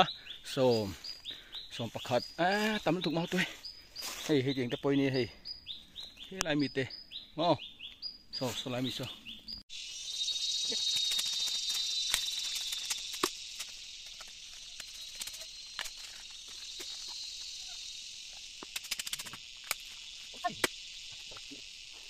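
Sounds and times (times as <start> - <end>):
high insect chorus: 0.0 - 22.0
knives cutting bamboo shoots: 10.6 - 16.2, 18.6 - 20.8.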